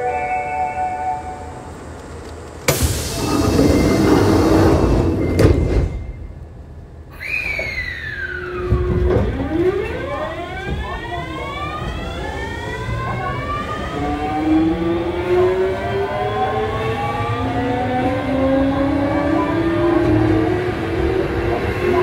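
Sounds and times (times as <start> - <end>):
train motors whining: 1.7 - 5.9.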